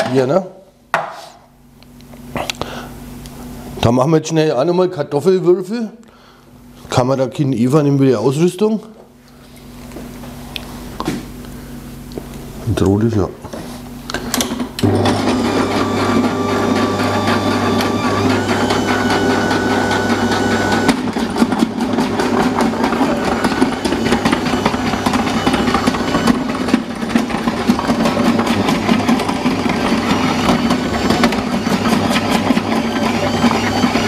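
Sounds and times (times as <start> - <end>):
kitchen machine motor whine: 14.0 - 34.0.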